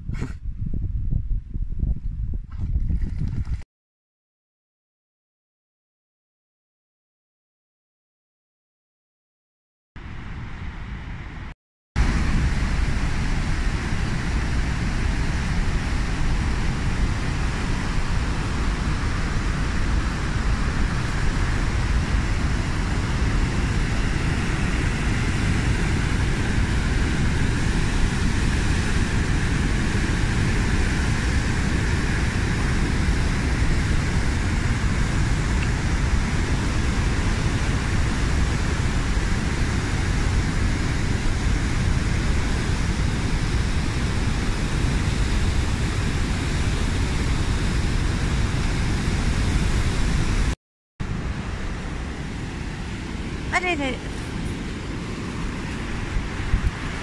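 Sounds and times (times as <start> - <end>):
water rushing from spillway: 12.0 - 57.0.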